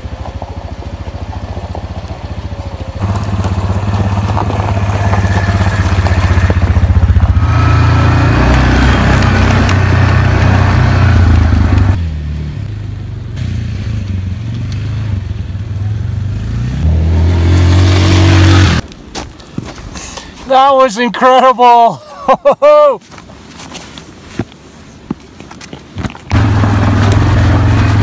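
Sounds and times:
atv engine revving: 0:00.0 - 0:12.7, 0:13.3 - 0:18.8, 0:26.3 - 0:28.0.

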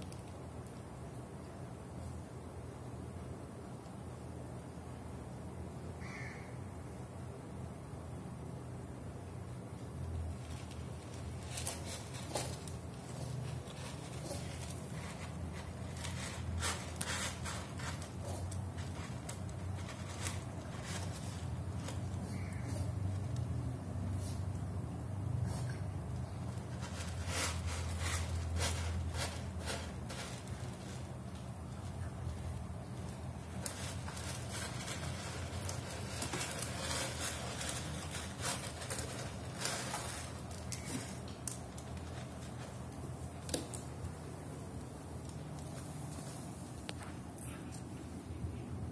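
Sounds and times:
kitten scratching in cat litter: 0:09.7 - 0:46.9.

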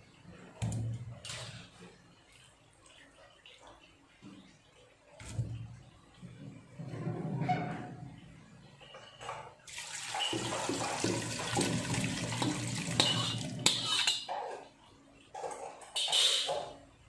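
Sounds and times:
liquid pouring and splashing: 0:09.7 - 0:14.2.

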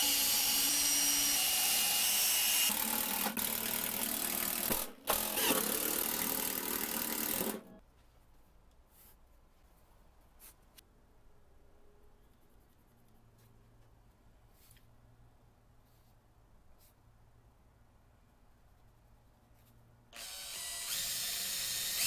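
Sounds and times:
cordless drill running: 0:00.0 - 0:07.7, 0:20.2 - 0:22.0.

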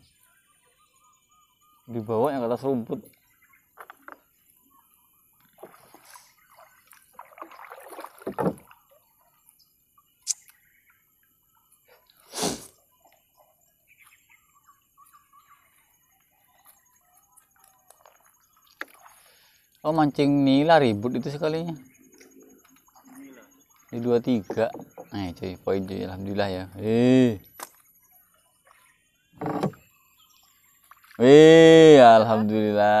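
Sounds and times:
water splashes: 0:05.4 - 0:09.2, 0:17.4 - 0:19.5, 0:30.7 - 0:32.3.

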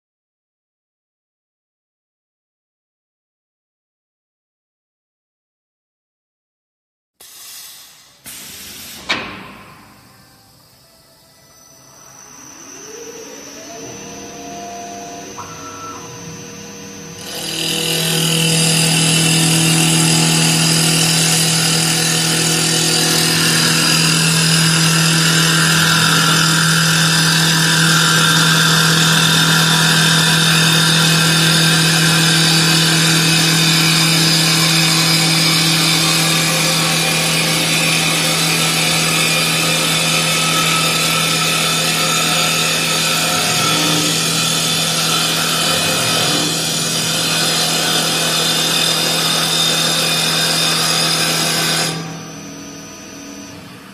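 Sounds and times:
lathe motor hum: 0:09.0 - 0:53.9
cutter working wood: 0:12.2 - 0:53.8.

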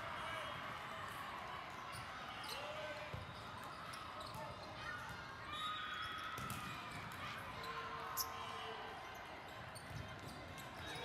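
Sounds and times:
murmur of spectators: 0:00.0 - 0:11.0
sneaker squeaks on court: 0:04.2 - 0:04.6.

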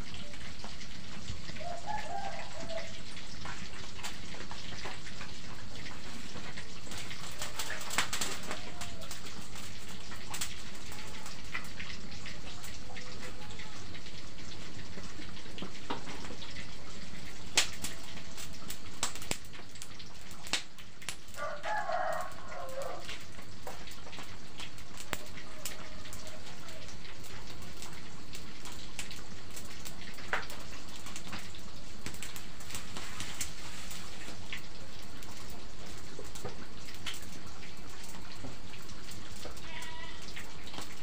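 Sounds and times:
rooster crowing: 0:01.6 - 0:03.1, 0:07.4 - 0:09.4, 0:21.4 - 0:23.2, 0:25.2 - 0:26.9
sharp crackles: 0:05.9 - 0:12.7, 0:17.4 - 0:41.0.

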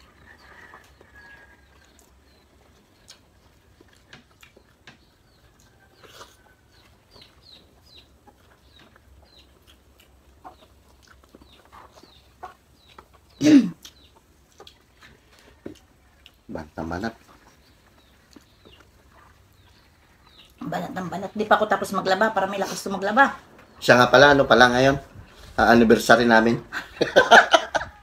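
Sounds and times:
chickens clucking: 0:00.0 - 0:28.0
clicks and taps of eating: 0:01.8 - 0:06.1, 0:12.8 - 0:16.5.

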